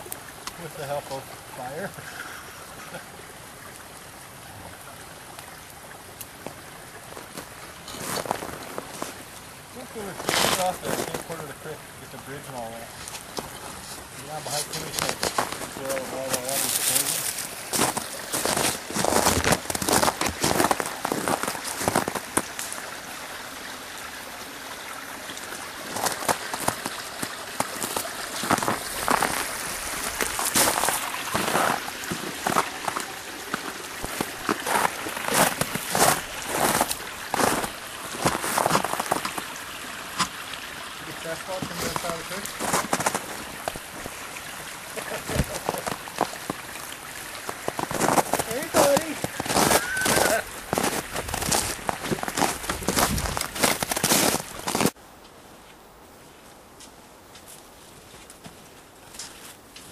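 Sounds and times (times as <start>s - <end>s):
creek flowing: 0.0s - 59.9s
crunching footsteps: 6.4s - 11.6s, 12.6s - 22.9s, 25.9s - 39.5s, 41.2s - 44.2s, 45.0s - 55.0s, 55.6s - 59.9s.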